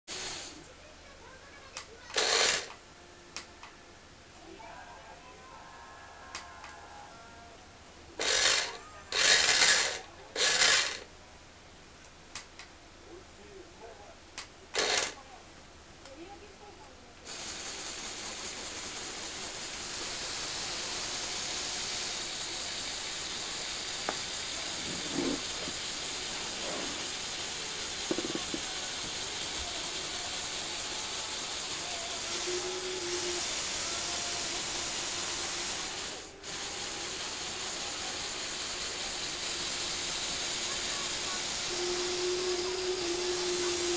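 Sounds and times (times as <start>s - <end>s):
electric motors and gears whirring: 2.1s - 2.8s, 8.2s - 11.1s, 14.8s - 15.2s, 17.3s - 43.9s.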